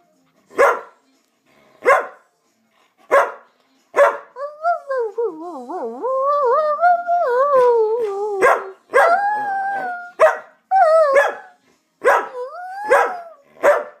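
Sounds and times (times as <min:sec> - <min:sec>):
dog barking: 0:00.5 - 0:01.0, 0:01.8 - 0:02.2, 0:03.1 - 0:04.3, 0:08.4 - 0:09.1, 0:10.2 - 0:10.5, 0:11.2 - 0:14.0
dog howling: 0:04.6 - 0:11.6, 0:12.2 - 0:13.6.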